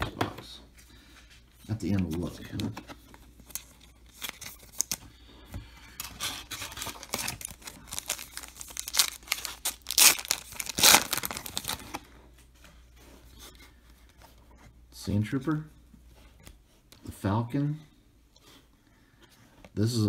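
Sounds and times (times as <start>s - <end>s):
foil wrapper crinkling and tearing: 6.0s - 12.0s.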